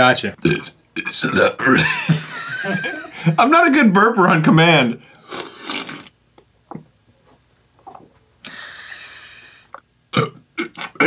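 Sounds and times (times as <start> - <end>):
man burping: 0.4 - 2.2, 10.1 - 11.0
man gulping air: 5.3 - 6.9, 7.8 - 8.6, 9.6 - 11.0.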